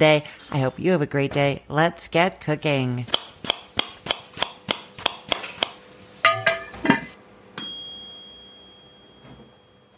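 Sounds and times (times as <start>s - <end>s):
bright ding: 7.6s - 9.9s.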